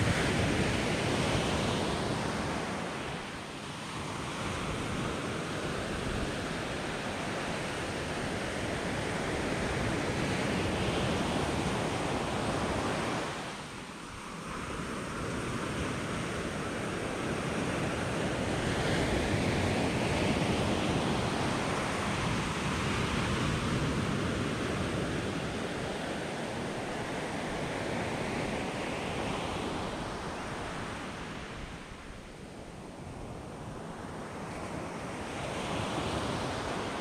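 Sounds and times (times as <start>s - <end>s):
surf washing up a sandy beach: 0.0s - 37.0s.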